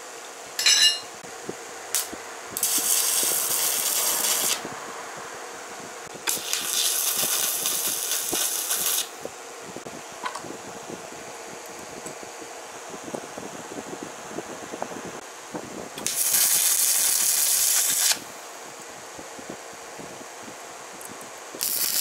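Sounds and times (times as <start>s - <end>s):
arc welder crackling and hissing: 0.0s - 10.4s, 15.2s - 19.2s, 20.9s - 22.0s
short metallic clink: 0.6s - 1.2s.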